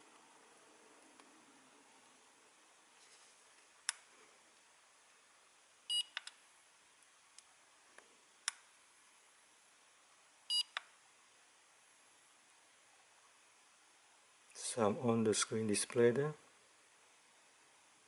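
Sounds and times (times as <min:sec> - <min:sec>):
short electronic beeps: 0:10.5 - 0:10.7.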